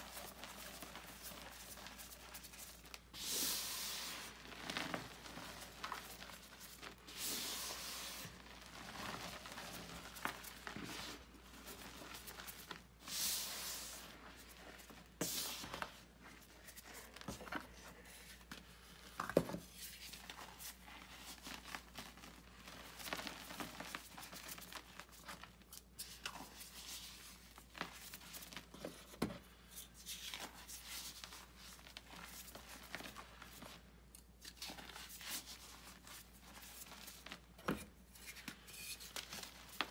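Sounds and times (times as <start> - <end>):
hands crunching powdered chalk: 0.0 - 15.8.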